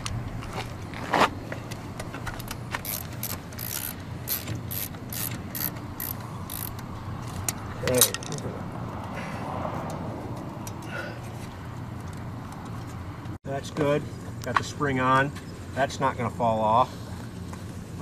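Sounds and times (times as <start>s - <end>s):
ratchet wrench clicking: 2.4s - 6.8s.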